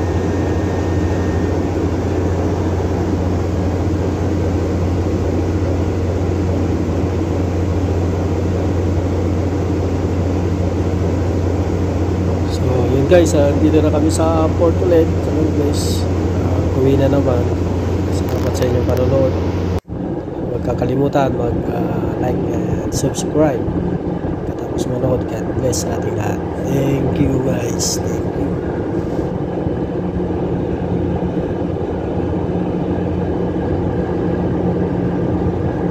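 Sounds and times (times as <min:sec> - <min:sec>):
rushing noise: 0:00.0 - 0:07.7
ship engines droning: 0:00.0 - 0:35.9.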